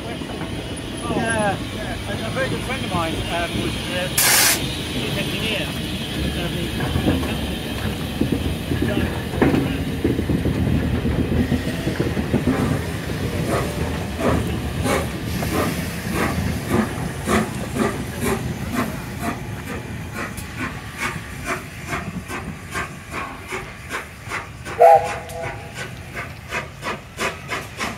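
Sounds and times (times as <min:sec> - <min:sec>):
steam locomotive rumble: 0:00.0 - 0:27.9
hiss of steam: 0:01.4 - 0:10.0, 0:11.2 - 0:27.9
locomotive exhaust beats: 0:04.4 - 0:27.9
train whistle blast: 0:24.8 - 0:25.7.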